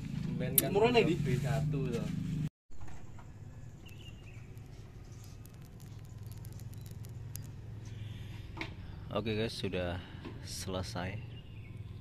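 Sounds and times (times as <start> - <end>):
faint ticks: 3.8 - 7.6
light scattered patter: 3.8 - 7.6.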